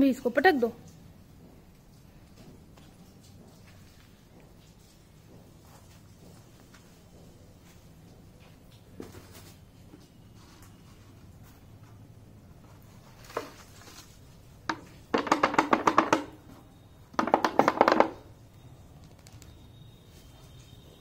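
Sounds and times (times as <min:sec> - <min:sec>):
plastic bottle rattling: 0:13.1 - 0:16.4, 0:17.2 - 0:18.3
knocks on plastic bottle: 0:14.7 - 0:16.4, 0:17.2 - 0:18.3.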